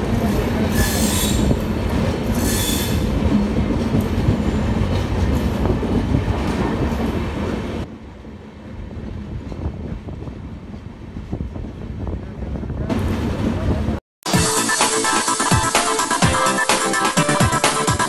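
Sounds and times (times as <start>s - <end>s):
train wheels squealing on rails: 0.2s - 1.7s, 2.3s - 3.6s.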